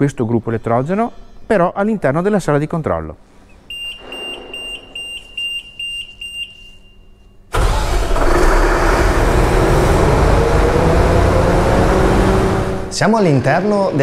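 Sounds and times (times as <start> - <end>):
control panel beeps: 3.7 - 7.1
diesel generator running: 7.5 - 13.1
faint rising whine: 9.0 - 13.1.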